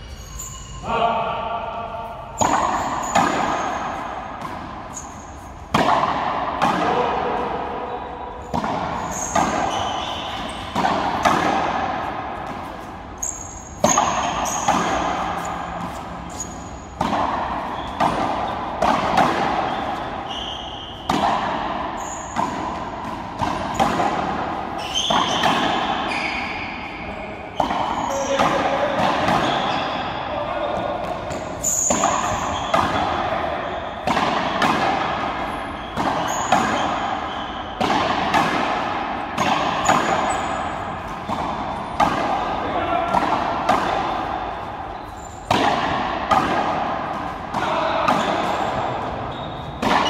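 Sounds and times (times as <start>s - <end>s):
short high squeaks: 0.0s - 0.9s, 4.9s - 5.5s, 9.0s - 10.8s, 13.2s - 16.9s, 19.7s - 21.1s, 22.0s - 22.4s, 24.8s - 27.0s, 31.4s - 32.8s, 45.0s - 45.5s, 49.3s - 49.8s
rubber ball hitting racquets and walls: 1.8s - 50.0s.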